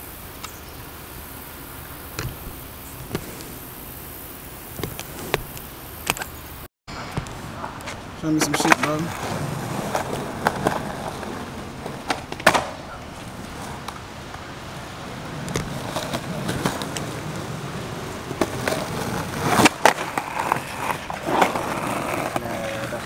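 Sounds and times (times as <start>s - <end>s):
skateboard wheels rolling on concrete: 0.0s - 23.0s
skateboard clacks: 7.2s - 14.4s, 15.3s - 23.0s.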